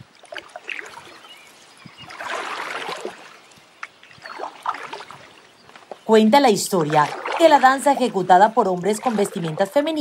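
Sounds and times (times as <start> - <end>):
water splashing and trickling: 0.0 - 10.0
paddle stroke swoosh: 2.1 - 3.4.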